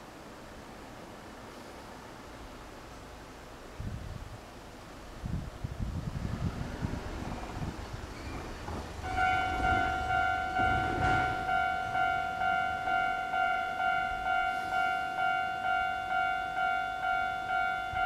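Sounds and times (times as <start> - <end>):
level crossing warning bell: 9.0 - 18.0.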